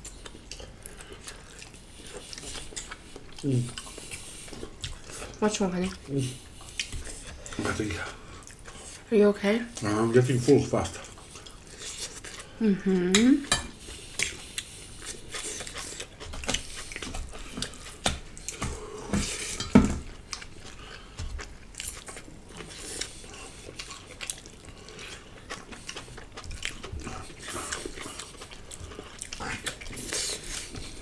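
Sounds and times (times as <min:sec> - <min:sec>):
chewing: 0:00.0 - 0:09.1, 0:09.7 - 0:31.0
cutlery clinking on plates and pots: 0:13.2 - 0:13.8, 0:19.2 - 0:20.1.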